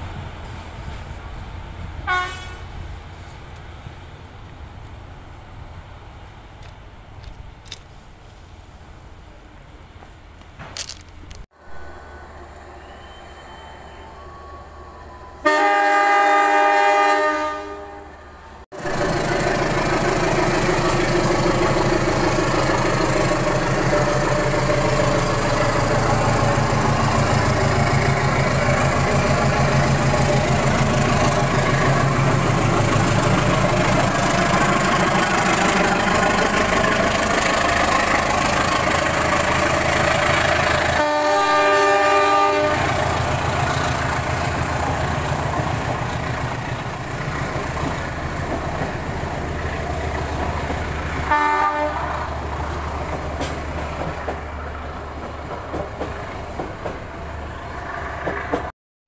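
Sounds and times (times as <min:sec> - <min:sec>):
train passing rumble and rattle: 0:00.0 - 0:58.7
multi-tone train horn: 0:02.0 - 0:02.8, 0:12.6 - 0:18.6, 0:40.6 - 0:43.3, 0:51.2 - 0:52.3.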